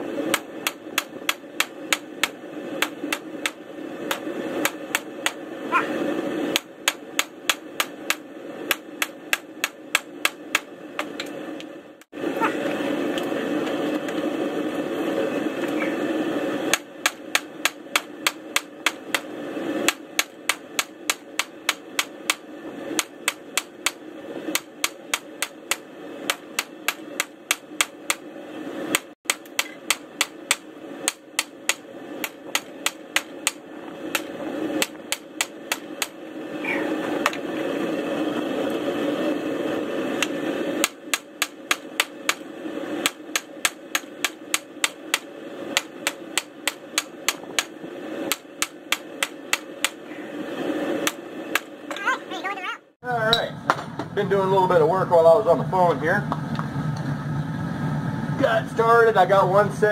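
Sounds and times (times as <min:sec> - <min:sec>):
steady rushing noise: 0:00.0 - 0:59.9
hammer striking steel on anvil: 0:00.3 - 0:05.4, 0:06.5 - 0:11.3, 0:16.7 - 0:19.3, 0:19.9 - 0:28.2, 0:28.9 - 0:36.2, 0:40.2 - 0:42.4, 0:43.0 - 0:47.7.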